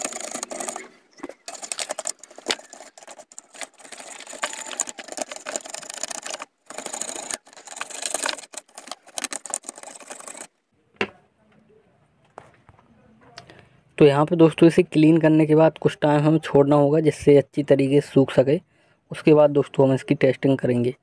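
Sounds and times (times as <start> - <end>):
toothbrush scrubbing circuit board: 0.0 - 10.5.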